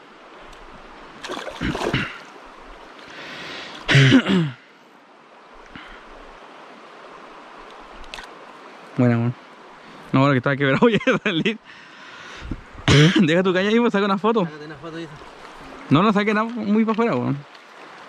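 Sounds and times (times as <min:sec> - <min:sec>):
river water running over cobbles: 0:00.0 - 0:11.7, 0:12.3 - 0:18.0
water sloshing: 0:01.0 - 0:04.0.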